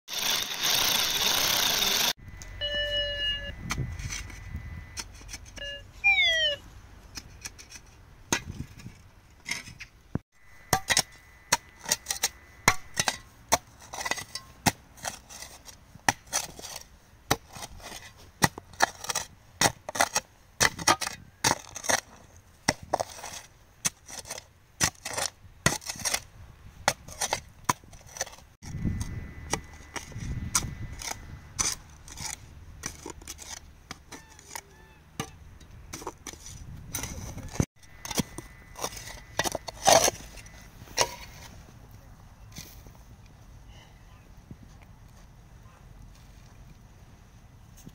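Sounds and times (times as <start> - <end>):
drill boring into rock: 0.1 - 2.2
shovel scraping earth and stones: 0.1 - 41.8, 42.4 - 43.2
short tones: 0.2 - 6.6
falling glide tone: 5.6 - 6.6.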